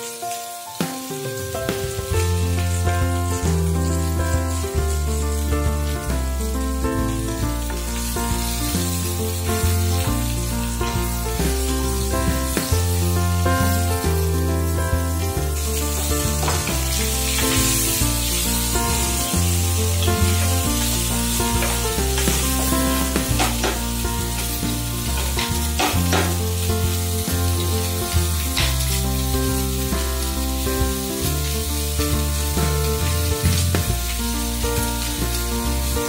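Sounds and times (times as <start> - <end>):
meat sizzling in a wok: 0.0 - 36.0
background music with bass: 1.4 - 36.0
wooden spatula knocking on pan: 16.0 - 16.9.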